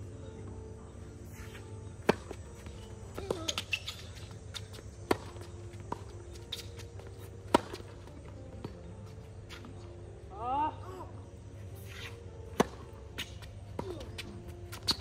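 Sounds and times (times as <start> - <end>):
tennis balls bouncing: 1.4 - 9.8, 11.9 - 15.0
tennis rackets hitting balls: 2.0 - 8.8, 11.9 - 15.0.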